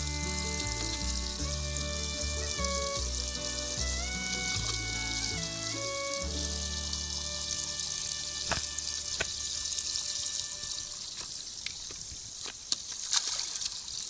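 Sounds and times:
water hissing and splashing: 0:00.0 - 0:14.0
sharp knocks and splashes: 0:08.2 - 0:09.8, 0:11.2 - 0:14.0.

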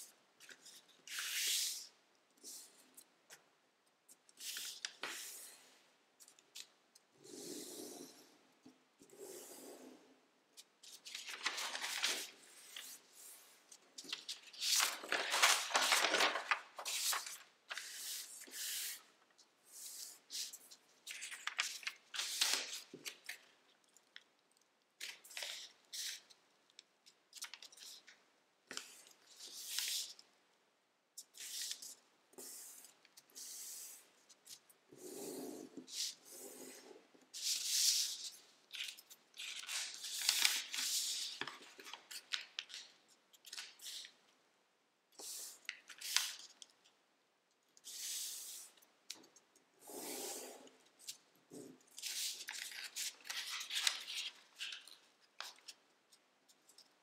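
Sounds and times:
foil paper rustling and crinkling: 0:11.1 - 0:12.3, 0:14.1 - 0:17.8, 0:21.2 - 0:22.7.

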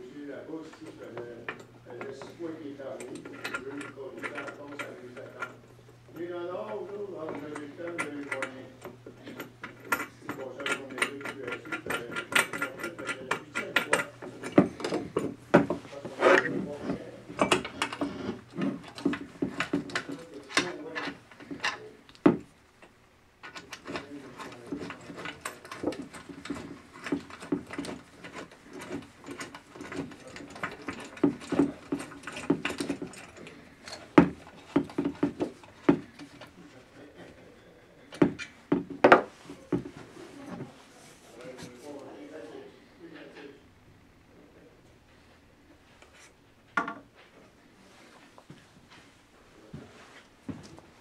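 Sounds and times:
metal bracket clicking and knocking: 0:16.5 - 0:36.5.

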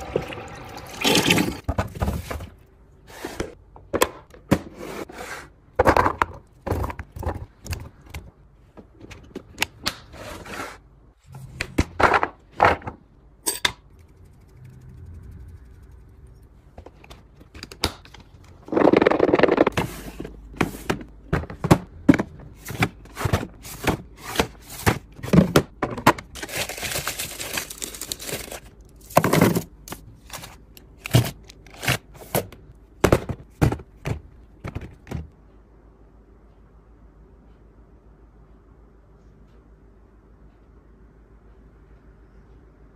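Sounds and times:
plastic rustling: 0:26.3 - 0:32.3.

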